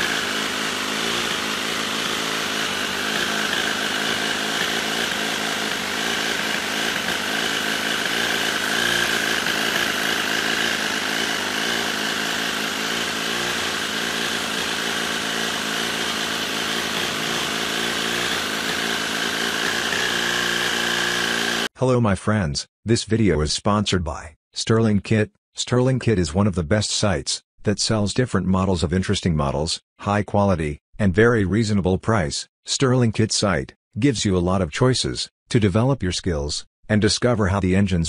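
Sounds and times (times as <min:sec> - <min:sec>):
miniature engine running: 0:00.0 - 0:21.7.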